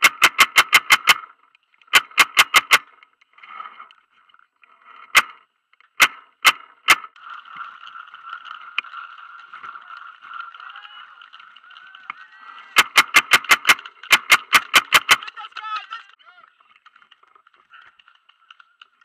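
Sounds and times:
paintball marker firing: 0.0 - 3.0, 5.1 - 9.0, 12.8 - 15.4.

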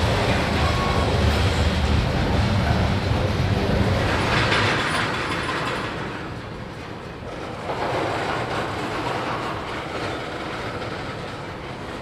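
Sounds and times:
heavy low rumble: 0.0 - 4.8
train wheels clicking on rails: 0.0 - 12.0.

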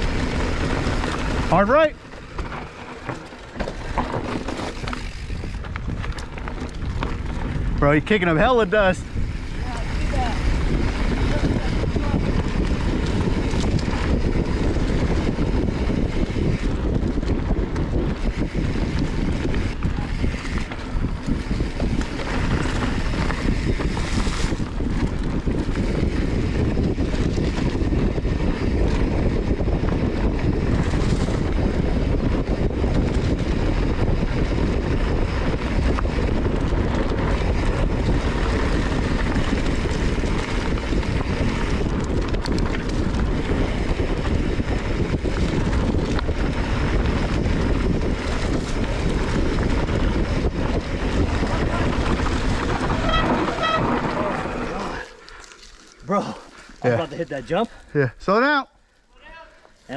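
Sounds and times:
bike knocks and rattles: 0.0 - 7.8
bike tyres rumbling over dirt: 0.0 - 58.4
wind buffeting microphone: 0.0 - 58.5.

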